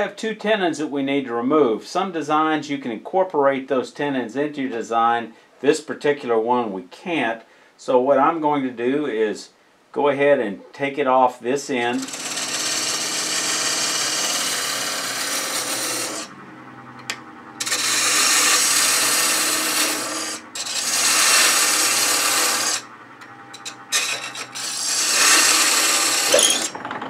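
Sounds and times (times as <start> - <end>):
lathe tool scraping wood: 11.8 - 16.4, 17.6 - 27.0
lathe motor hum: 12.0 - 27.0.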